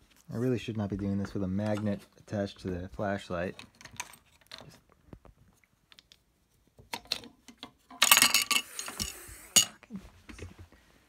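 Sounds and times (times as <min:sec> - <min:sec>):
metal parts clinking on desk: 0:07.0 - 0:09.8.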